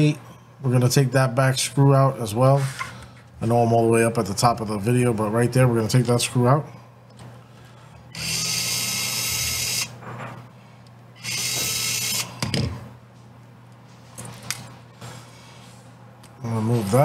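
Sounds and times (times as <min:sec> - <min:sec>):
electric screwdriver whirring: 0:08.1 - 0:09.9, 0:11.2 - 0:12.4.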